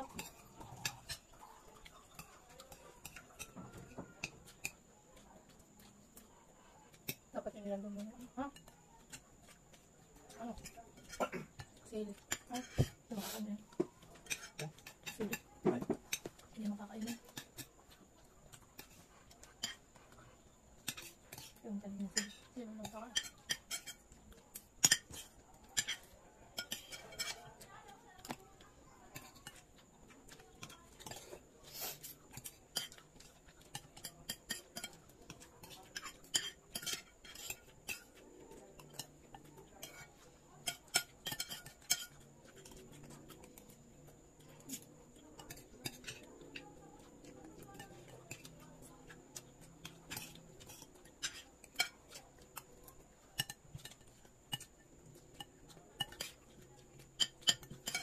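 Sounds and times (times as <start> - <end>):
cutlery clinking on plates: 10.6 - 13.0, 13.7 - 17.9, 20.8 - 27.5, 30.3 - 38.2, 38.8 - 43.7, 44.4 - 52.7, 53.4 - 58.0.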